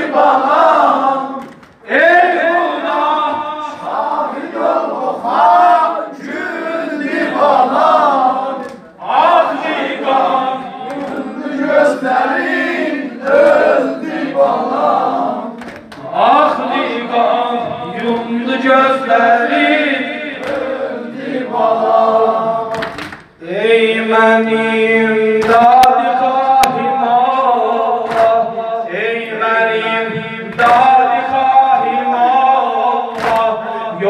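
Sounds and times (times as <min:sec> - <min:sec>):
mourners singing in chorus: 0:00.0 - 0:34.0
chest-beating slaps: 0:01.4 - 0:01.8, 0:10.8 - 0:11.3, 0:15.6 - 0:16.1, 0:20.4 - 0:20.7, 0:28.0 - 0:28.4, 0:33.1 - 0:33.5
man chanting lament into microphone: 0:16.0 - 0:20.4, 0:23.4 - 0:34.0.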